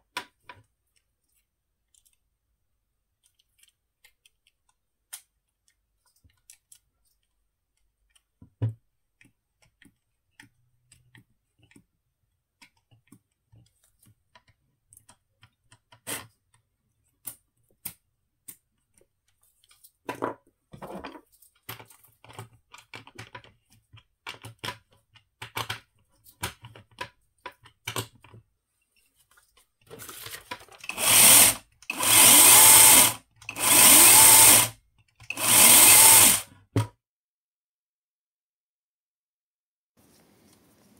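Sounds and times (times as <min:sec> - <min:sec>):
electric motor whining bursts: 0:30.9 - 0:34.7, 0:35.3 - 0:36.4.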